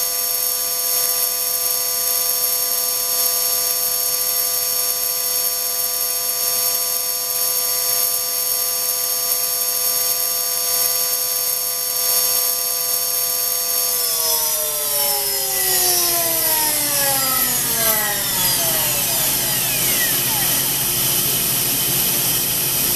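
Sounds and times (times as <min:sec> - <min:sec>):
electric motor whining: 0:13.8 - 0:22.9.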